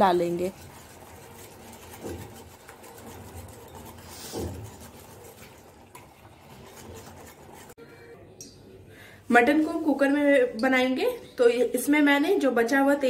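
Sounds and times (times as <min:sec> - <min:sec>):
whisk scraping glass bowl: 0:00.0 - 0:07.8.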